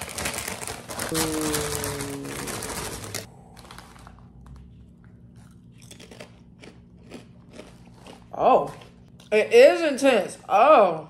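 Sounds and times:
plastic snack bag crinkling: 0:00.0 - 0:04.6.

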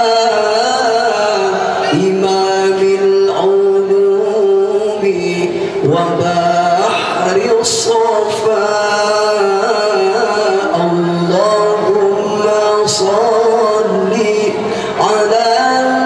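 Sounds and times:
man singing devotional song: 0:00.0 - 0:16.0.

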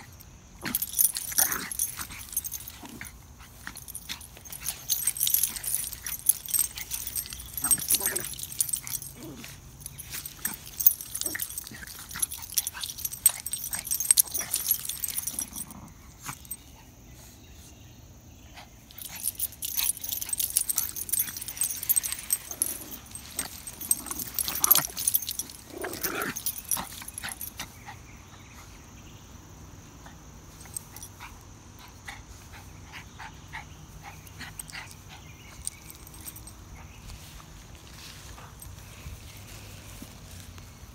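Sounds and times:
dog tags and leash clips jingling: 0:00.0 - 0:17.1, 0:18.6 - 0:40.9
dogs scuffling in grass: 0:00.6 - 0:16.6, 0:19.0 - 0:28.0, 0:35.6 - 0:40.9.

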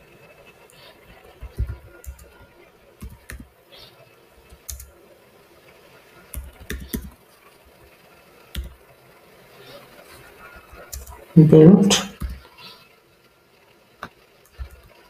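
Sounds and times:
typing on computer keyboard: 0:01.4 - 0:03.5, 0:04.5 - 0:04.9, 0:06.3 - 0:07.2, 0:08.5 - 0:08.8, 0:10.9 - 0:11.2.

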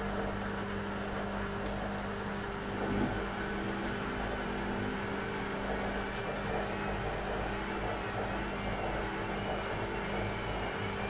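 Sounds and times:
washing machine churning: 0:00.0 - 0:11.0
washing machine hum: 0:00.0 - 0:11.0.

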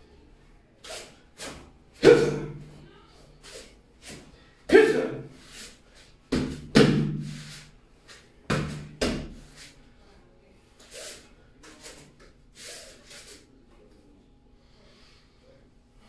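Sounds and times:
staff swishing: 0:00.8 - 0:02.6.

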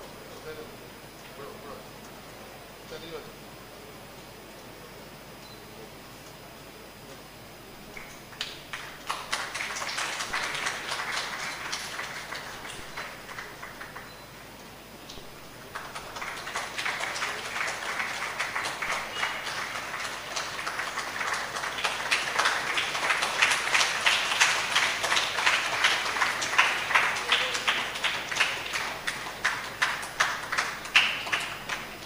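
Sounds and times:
audience applauding: 0:08.3 - 0:14.1, 0:15.6 - 0:32.0.

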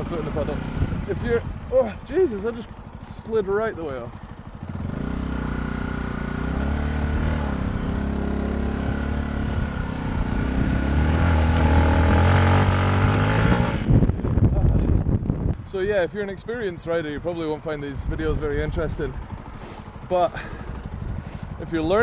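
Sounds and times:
dirt bike engine revving: 0:00.0 - 0:14.6, 0:19.2 - 0:22.0.

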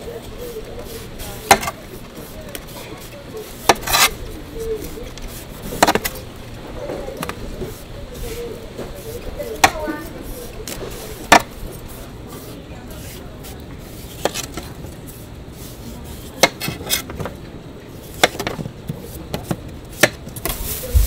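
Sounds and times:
knife paring melon rind: 0:00.0 - 0:06.3, 0:07.1 - 0:17.3.

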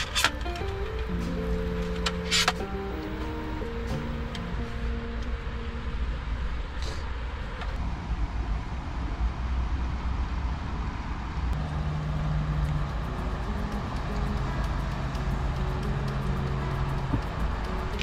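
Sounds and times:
background music: 0:00.0 - 0:06.9, 0:11.6 - 0:18.0
low outdoor rumble: 0:00.0 - 0:18.0.

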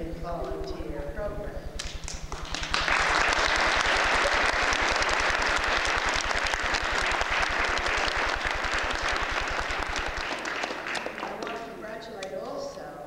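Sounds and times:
children clapping: 0:01.8 - 0:11.8.

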